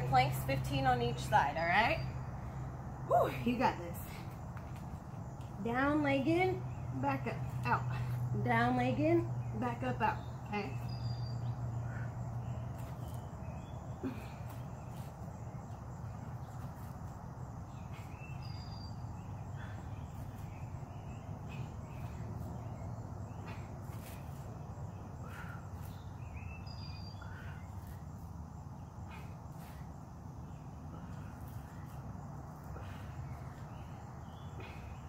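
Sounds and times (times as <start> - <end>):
insect drone: 10.2 - 35.0.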